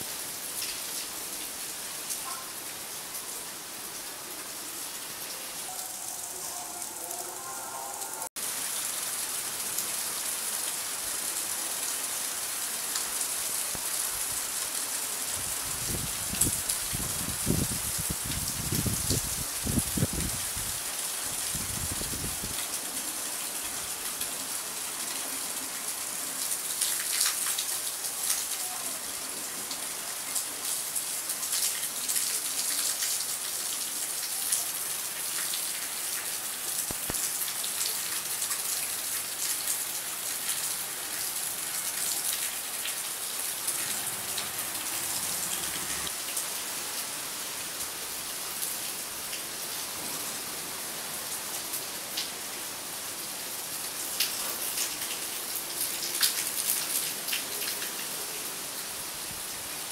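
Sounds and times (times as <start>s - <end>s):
heavy rain: 0.0s - 59.9s
close raindrop hits: 36.8s - 37.5s.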